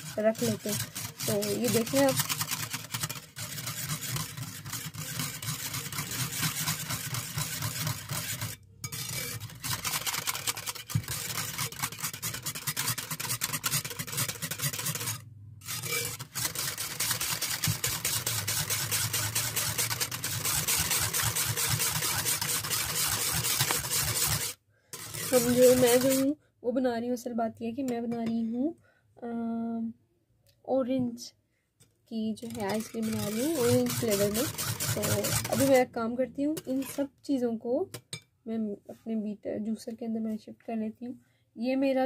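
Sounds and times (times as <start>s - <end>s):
whisk scraping a bowl: 0.0s - 26.4s, 32.4s - 37.2s.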